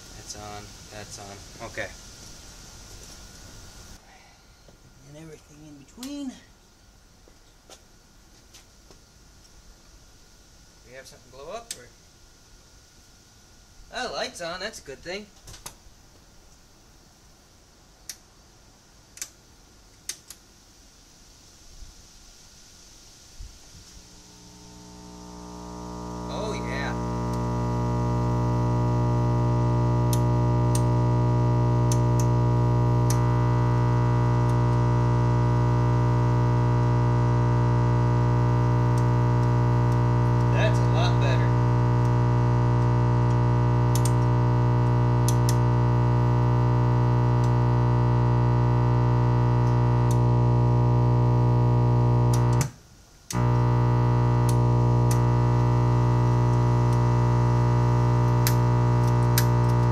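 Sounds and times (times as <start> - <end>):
tube radio buzzing hum: 0.0 - 7.1, 23.5 - 59.9.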